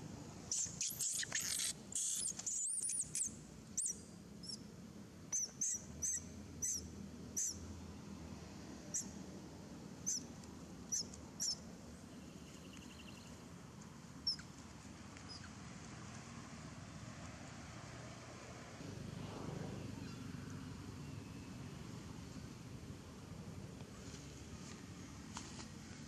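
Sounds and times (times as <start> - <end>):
monkey squealing: 0.5 - 3.3.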